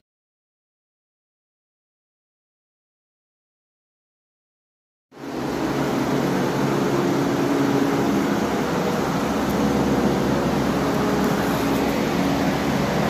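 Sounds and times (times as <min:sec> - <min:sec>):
electric fan running: 0:05.2 - 0:13.0.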